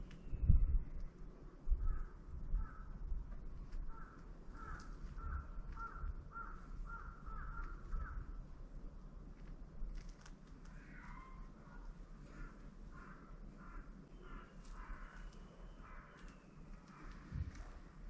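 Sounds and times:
crow cawing faintly: 0:01.7 - 0:03.1, 0:03.7 - 0:08.4, 0:10.7 - 0:18.0.

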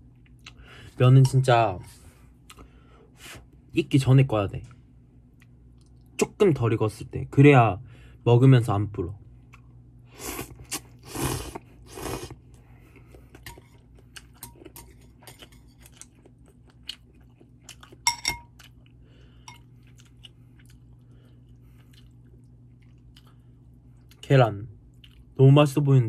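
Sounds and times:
noodles slurped: 0:10.2 - 0:12.4
wet chewing: 0:10.4 - 0:19.0, 0:19.7 - 0:24.2.

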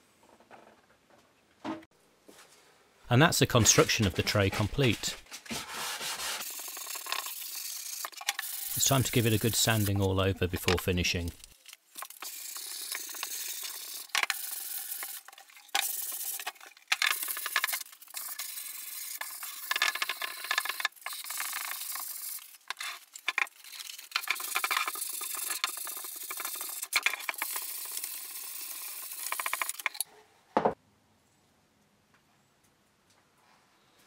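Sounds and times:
sandpaper rubbing on wood: 0:05.5 - 0:07.2, 0:08.6 - 0:10.1.

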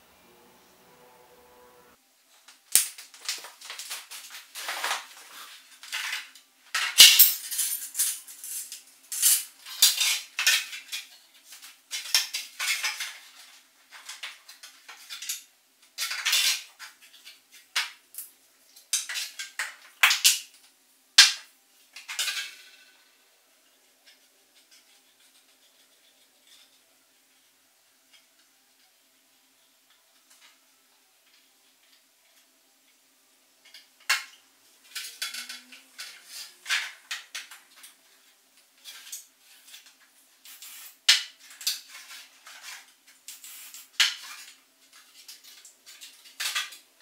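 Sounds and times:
plastic parts clattering on table: 0:02.7 - 0:23.0, 0:33.6 - 0:46.9.

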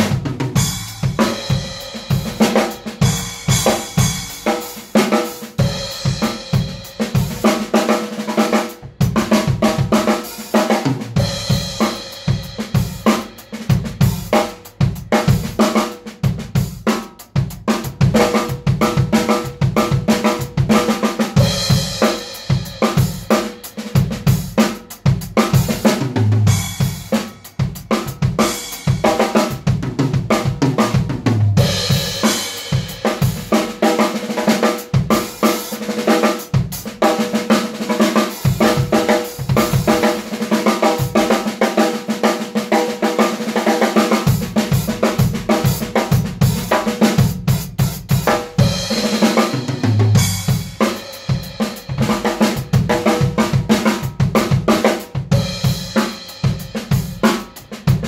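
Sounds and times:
acoustic drum kit playing: 0:00.0 - 0:58.0.

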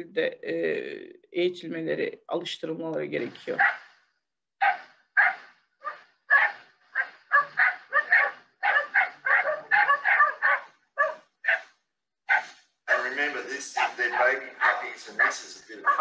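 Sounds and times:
puppies barking: 0:03.6 - 0:03.9, 0:04.6 - 0:11.7, 0:12.3 - 0:16.0.

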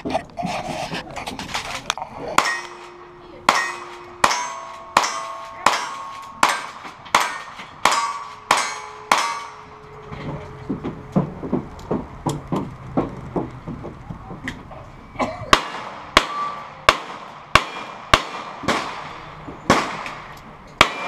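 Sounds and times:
bullet clanging on steel target: 0:02.4 - 0:10.6
light knocks and clatter: 0:09.9 - 0:14.9
gunshots: 0:15.5 - 0:21.0.

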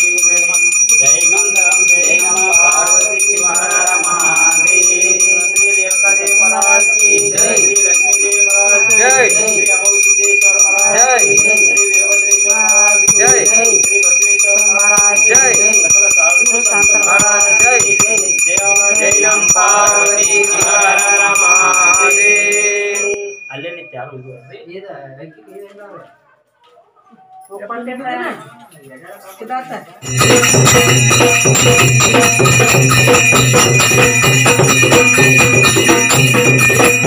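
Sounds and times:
bell rung rapidly: 0:00.0 - 0:24.3, 0:30.0 - 0:37.0
voices: 0:00.0 - 0:37.0
music: 0:30.0 - 0:37.0.

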